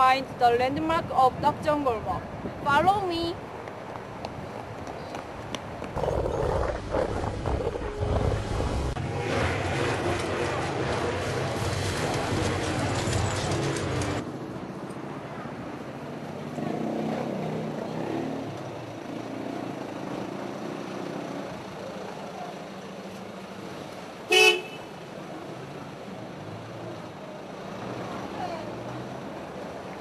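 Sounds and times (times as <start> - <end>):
street ambience: 0.0 - 30.0
vehicle horn toot: 24.3 - 24.9.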